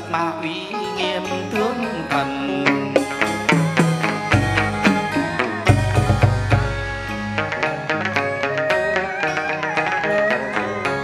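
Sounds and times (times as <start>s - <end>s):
plucked lute melody: 0.0s - 11.0s.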